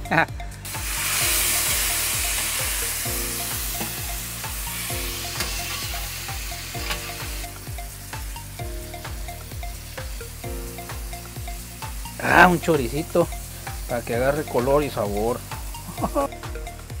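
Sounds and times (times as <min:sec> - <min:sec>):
background music with a beat: 0:00.0 - 0:17.0
food sizzling on a griddle: 0:00.7 - 0:16.3
metal spatula scraping: 0:04.8 - 0:07.4.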